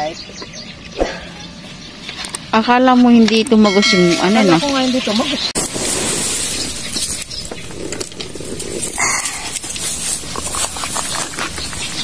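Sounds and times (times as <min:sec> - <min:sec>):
dry grass rustling and crackling: 0:03.9 - 0:12.0
loud scrape: 0:05.6 - 0:11.5.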